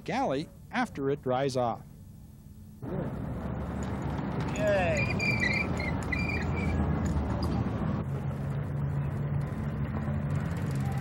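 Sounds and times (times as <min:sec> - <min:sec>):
short high squeals: 0:04.8 - 0:06.8.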